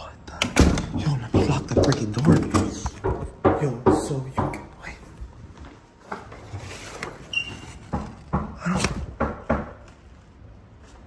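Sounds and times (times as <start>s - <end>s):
knocks and bumps: 0.5s - 4.9s, 7.8s - 9.9s
high squeak: 7.2s - 7.8s.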